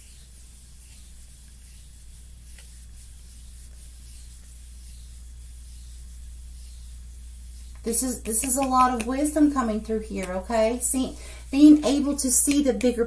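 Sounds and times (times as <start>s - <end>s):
low electrical hum: 0.0s - 13.0s
cards being shuffled: 7.7s - 9.5s.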